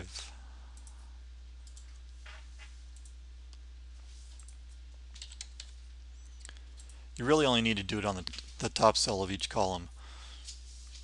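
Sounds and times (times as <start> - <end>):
low electrical hum: 0.0 - 11.0
computer mouse clicks: 1.6 - 2.0, 3.0 - 3.6, 4.3 - 7.0
keyboard keystrokes: 5.2 - 5.8.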